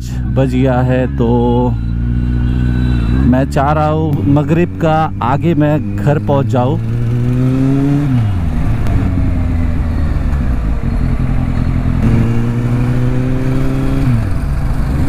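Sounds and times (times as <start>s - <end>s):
motorcycle engine: 0.0s - 15.0s.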